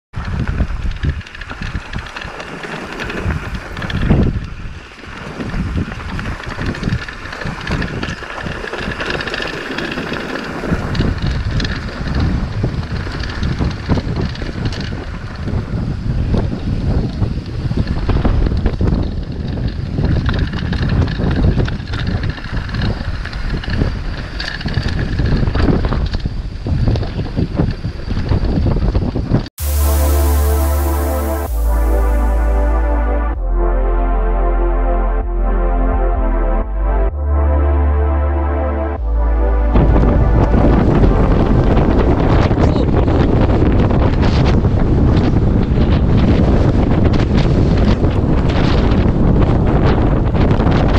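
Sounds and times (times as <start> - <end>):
wind buffeting microphone: 0.1 - 29.6, 39.0 - 50.9
bike tyres crunching on gravel: 0.3 - 15.0.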